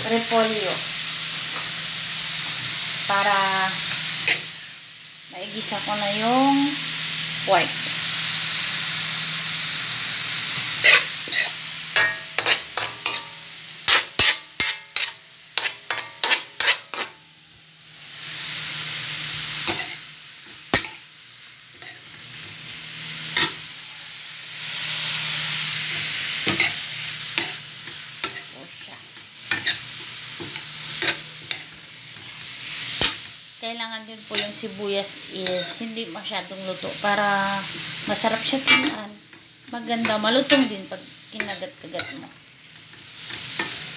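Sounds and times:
onions sizzling in a pan: 0.0 - 43.9
metal spoon clinking and scraping pan: 4.2 - 4.5, 10.7 - 17.2, 19.6 - 21.1, 21.8 - 22.6, 23.3 - 23.7, 25.9 - 33.4, 35.4 - 36.1, 37.7 - 43.9.

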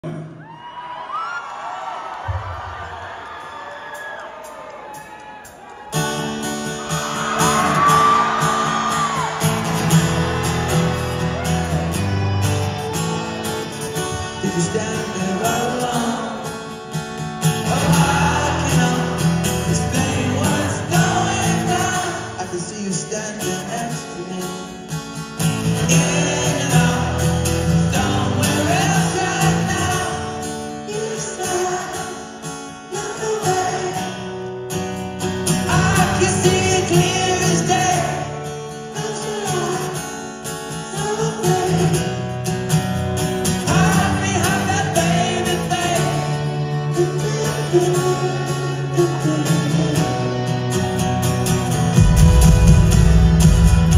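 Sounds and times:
live rock band playing: 4.3 - 53.9
strummed acoustic guitar: 5.9 - 53.9
person singing: 6.6 - 24.9, 25.6 - 34.3, 35.5 - 42.3, 43.5 - 50.8.

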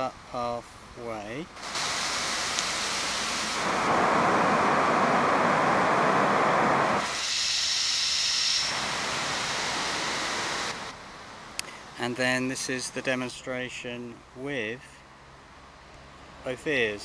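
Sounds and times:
traffic rushing on busy road: 0.0 - 13.0, 14.2 - 17.0
steady hiss: 0.0 - 14.8.

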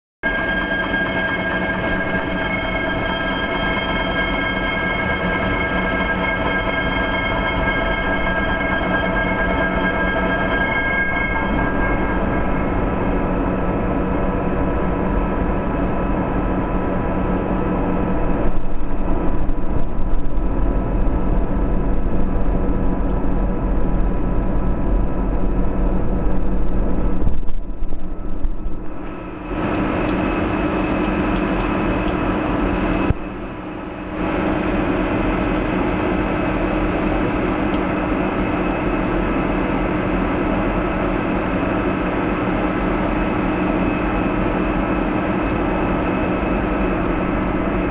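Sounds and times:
high whining tones: 0.2 - 14.8
lathe machine drone: 0.2 - 16.8, 29.0 - 47.9.

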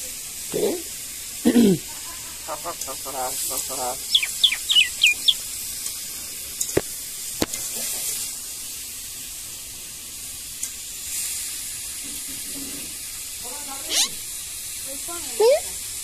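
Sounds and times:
steady background hiss: 0.0 - 12.3.

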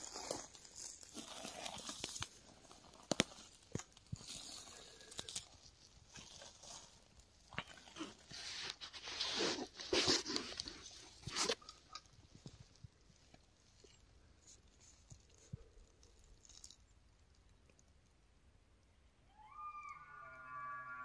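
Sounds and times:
twigs snapping: 0.0 - 8.1
footsteps on forest floor: 0.0 - 11.9.

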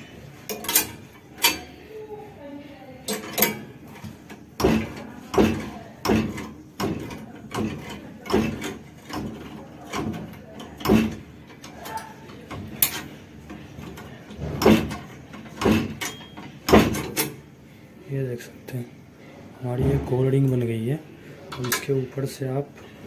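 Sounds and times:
metal bending machine clanking: 0.0 - 1.8, 3.1 - 17.4.

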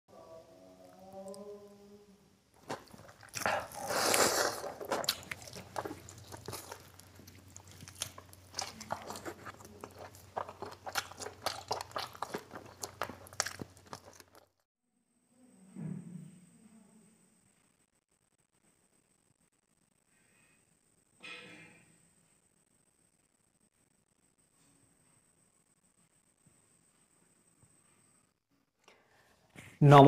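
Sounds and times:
person chewing food: 2.6 - 14.6.

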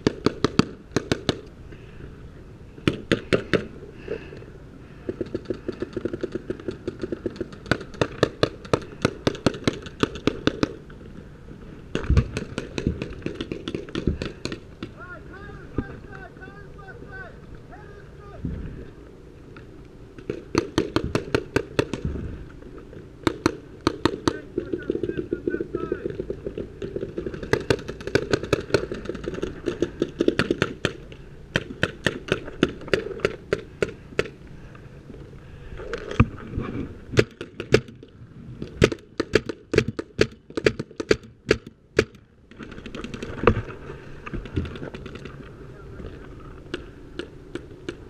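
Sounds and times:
paintball markers firing: 0.0 - 1.5, 5.1 - 10.8, 11.9 - 15.0, 20.2 - 22.1, 23.2 - 34.4, 37.2 - 38.1, 38.8 - 42.2.

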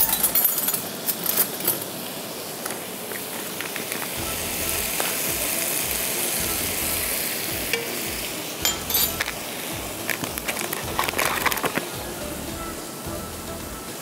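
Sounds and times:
food sizzling in a pan: 0.0 - 14.0
spoon clicking against pan: 7.7 - 8.0.

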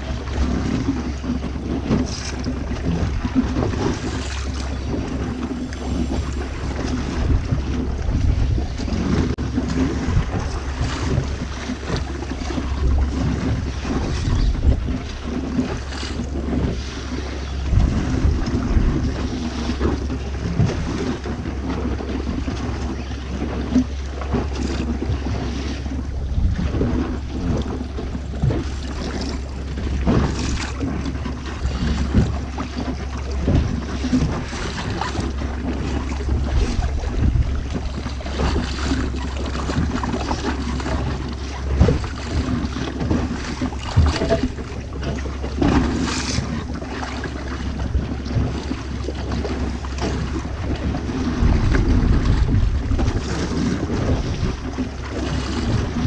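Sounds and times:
steady low rumble: 0.0 - 56.0
water splashing against hull: 0.0 - 56.0
wind gusting on microphone: 0.0 - 56.0.

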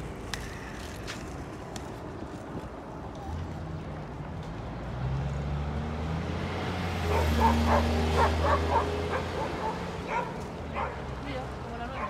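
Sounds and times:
vehicle engine droning: 3.2 - 11.9.

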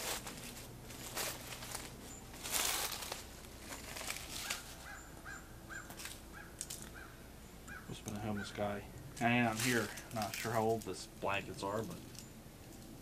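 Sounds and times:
footsteps crunching dry leaves: 0.0 - 6.9, 9.2 - 11.9
bird calling harsh notes: 3.7 - 9.0.

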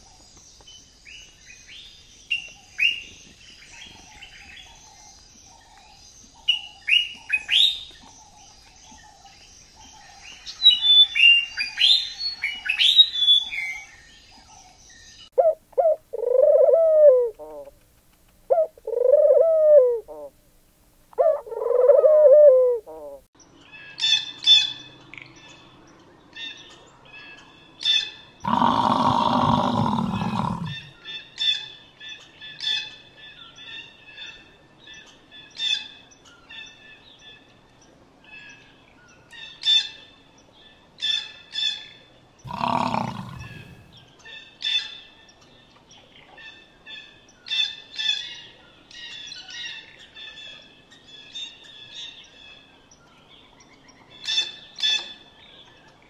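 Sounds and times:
birds chirping: 25.4 - 31.3, 42.4 - 44.3
water buffalo lowing: 28.5 - 30.9, 42.5 - 44.0.

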